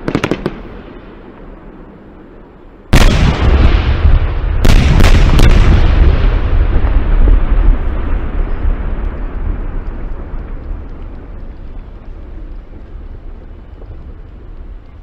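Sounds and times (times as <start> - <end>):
fireworks bangs: 0.0 - 1.6, 2.9 - 9.2.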